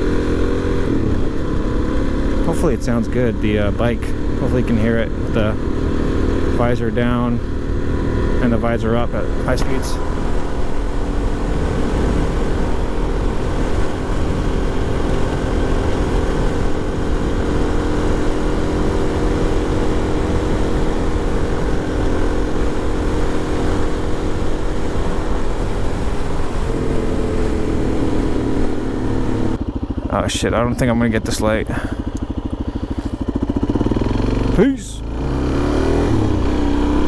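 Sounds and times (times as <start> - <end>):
motorcycle engine running: 0.0 - 37.0
wind rumble: 0.0 - 37.0.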